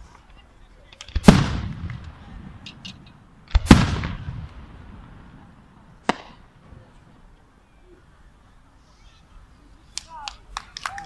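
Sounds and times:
firework shells exploding: 0:01.0 - 0:06.6.

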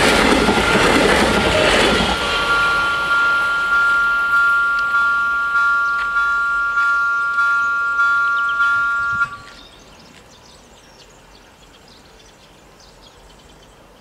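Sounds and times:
level crossing warning bell: 0:00.0 - 0:09.6
faint high chirps: 0:02.3 - 0:09.8.

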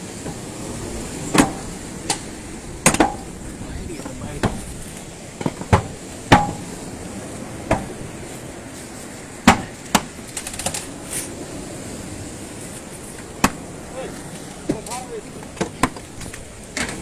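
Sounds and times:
demolition tools knocking masonry: 0:05.4 - 0:06.7, 0:09.4 - 0:10.7.

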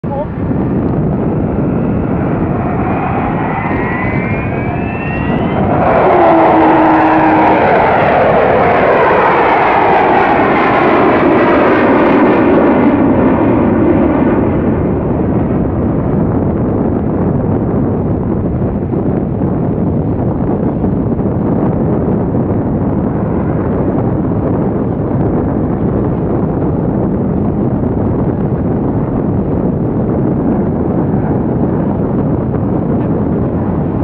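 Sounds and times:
jet aircraft flying past: 0:00.3 - 0:16.1, 0:22.0 - 0:25.0.

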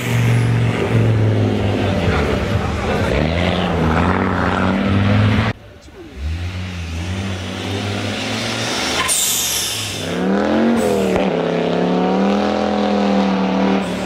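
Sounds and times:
rally car engine accelerating: 0:00.0 - 0:14.0
short hiss: 0:08.6 - 0:10.1.

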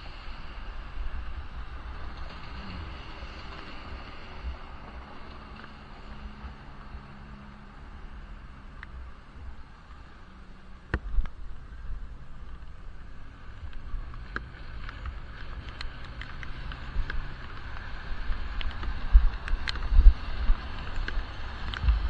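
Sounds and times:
muffled wind and road rumble: 0:00.0 - 0:22.0.

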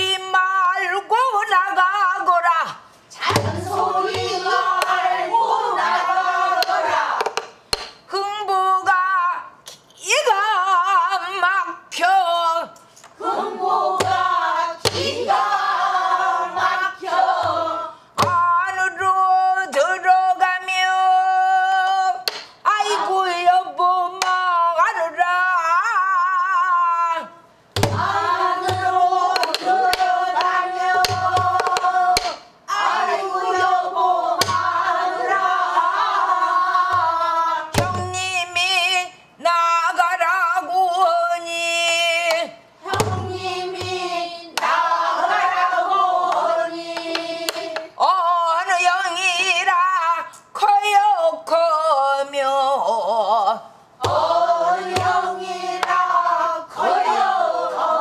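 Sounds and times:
barrel drum thumps: 0:03.3 - 0:05.0, 0:27.8 - 0:29.6, 0:36.9 - 0:38.2, 0:42.9 - 0:44.1
woman singing: 0:08.1 - 0:12.8, 0:16.6 - 0:27.3, 0:36.9 - 0:44.6, 0:45.3 - 0:56.6.

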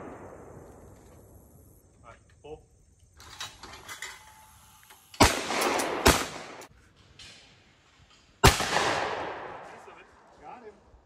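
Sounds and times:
shotgun shots echoing: 0:05.2 - 0:06.7, 0:08.4 - 0:10.0.

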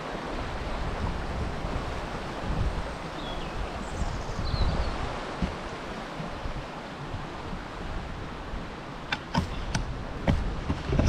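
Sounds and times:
river rushing over rocks: 0:00.0 - 0:11.0
sharp clicks and knocks: 0:09.1 - 0:11.0.

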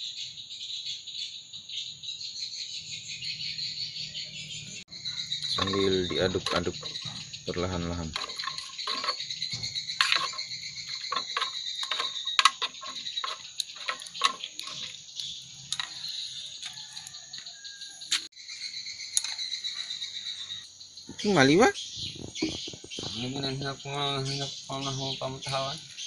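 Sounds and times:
crickets chirping: 0:00.0 - 0:26.0
sharp clicks and knocks: 0:05.4 - 0:07.3, 0:08.0 - 0:16.8
pot boiling over: 0:09.9 - 0:15.0.

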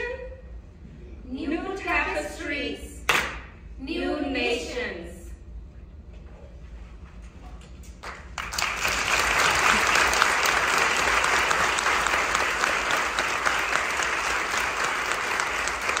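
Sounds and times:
audience applauding: 0:08.0 - 0:16.0.

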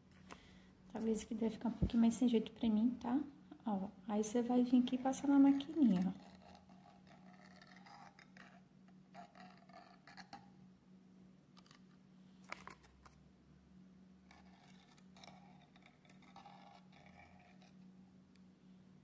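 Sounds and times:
faint low hum: 0:00.0 - 0:19.0.

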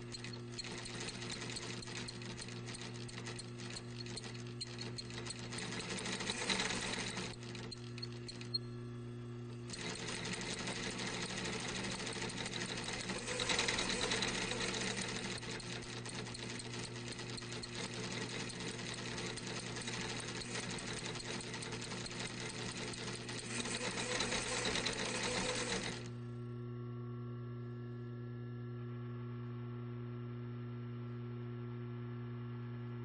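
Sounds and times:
sewing machine needle clatter: 0:00.0 - 0:08.6, 0:09.6 - 0:26.1.

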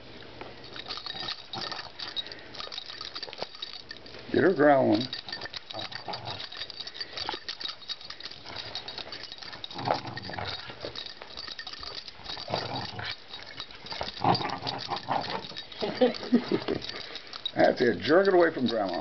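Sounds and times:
dog growling: 0:01.0 - 0:03.4, 0:04.9 - 0:19.0.

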